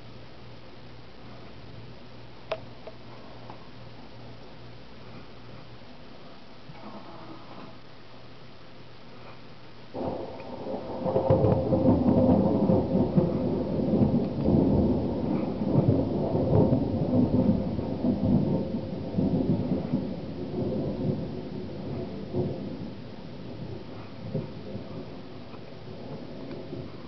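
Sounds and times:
rolling thunder: 9.9s - 27.0s.

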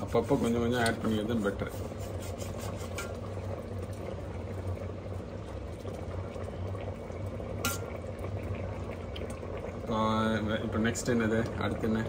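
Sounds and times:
ladle stirring rice: 0.0s - 3.4s
rice simmering with soft bubbling: 0.0s - 12.0s
steady low hum: 0.0s - 12.0s.

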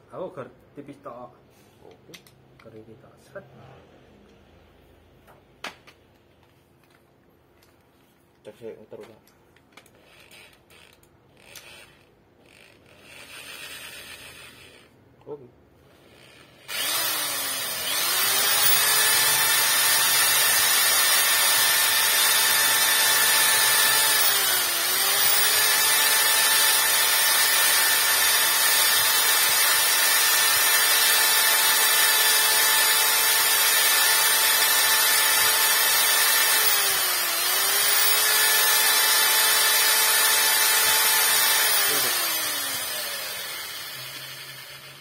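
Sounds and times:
electric drill grinding metal: 9.8s - 15.0s, 15.9s - 45.0s.

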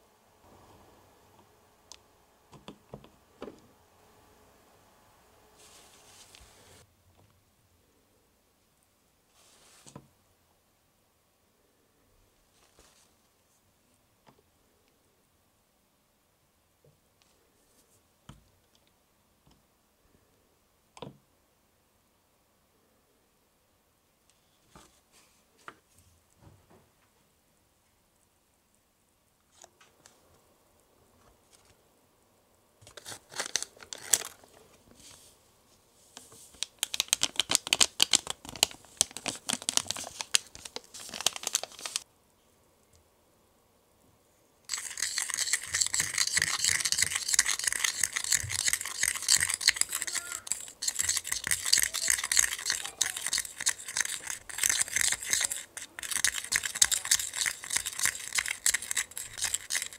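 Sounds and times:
rustling and crinkling: 5.6s - 6.8s, 12.5s - 13.6s, 31.1s - 31.8s, 32.8s - 42.1s
spatula scraping plastic bowl: 44.7s - 59.9s.

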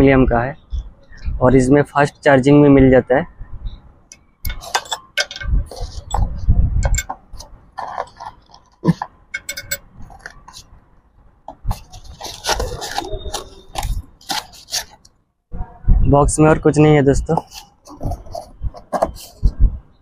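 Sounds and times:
cardboard box rummaged by hand: 7.8s - 9.1s, 11.5s - 15.0s, 17.4s - 19.4s.

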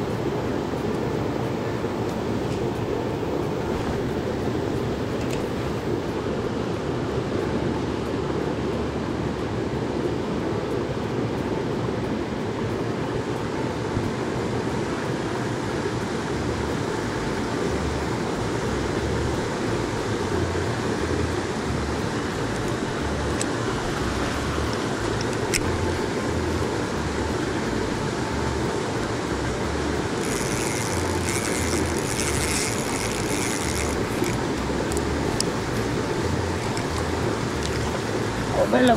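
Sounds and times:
mountain torrent rushing: 0.0s - 38.9s.

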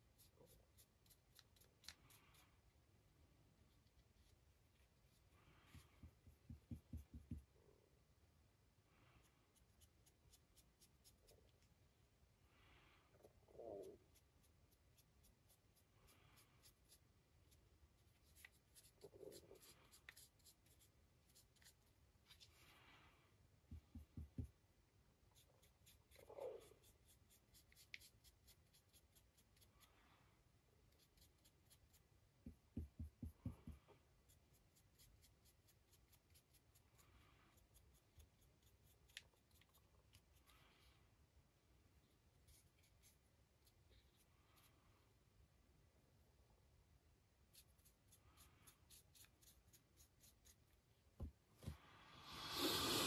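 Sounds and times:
paintbrush scratching: 0.0s - 2.4s, 3.6s - 7.4s, 9.2s - 11.8s, 13.4s - 22.8s, 25.2s - 29.8s, 30.8s - 40.6s, 42.0s - 44.9s, 47.5s - 51.0s.

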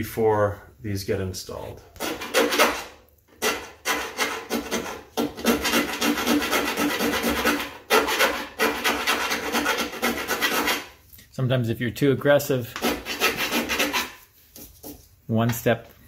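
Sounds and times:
file rasping on sheet steel: 2.0s - 11.0s, 12.7s - 14.3s.

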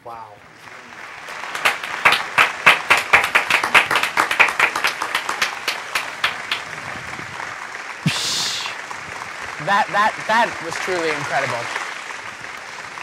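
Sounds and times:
hand clapping: 1.3s - 6.8s, 8.0s - 13.0s.

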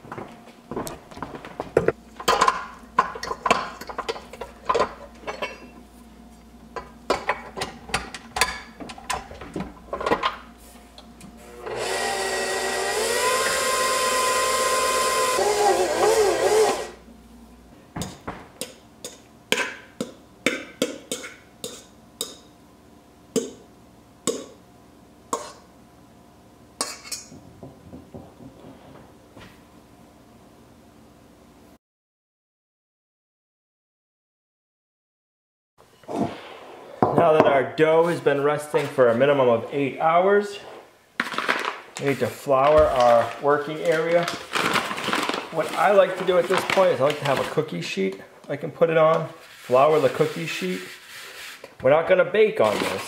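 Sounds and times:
stand mixer motor whine: 11.4s - 17.0s
dough being scraped: 49.4s - 51.8s.

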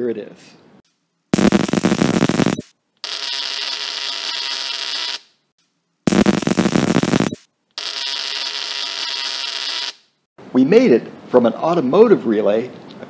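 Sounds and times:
spark generator buzzing: 1.4s - 5.2s, 6.1s - 10.0s.

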